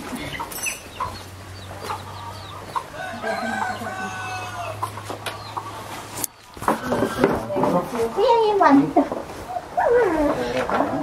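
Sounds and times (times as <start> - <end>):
hens clucking: 0.0 - 11.0
rooster crowing: 2.9 - 4.9.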